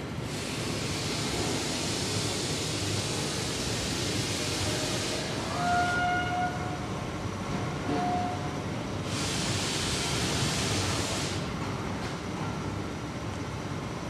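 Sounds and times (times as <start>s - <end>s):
machinery steady rumble: 0.0s - 14.0s
rushing hiss: 0.2s - 5.7s, 9.0s - 11.5s
short pitched toot: 7.9s - 8.5s.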